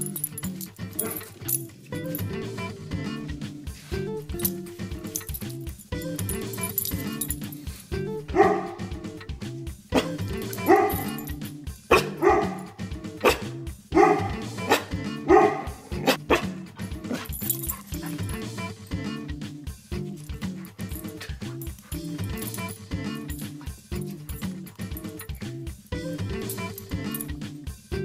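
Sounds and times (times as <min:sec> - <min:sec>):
background music: 0:00.0 - 0:28.0
puppy barking: 0:08.3 - 0:09.0, 0:09.9 - 0:18.5.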